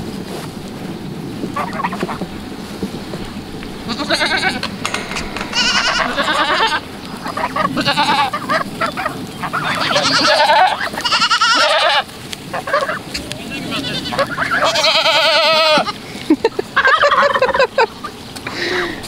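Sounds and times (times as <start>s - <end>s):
goats bleating: 3.8s - 4.7s, 7.7s - 8.5s, 9.5s - 16.1s.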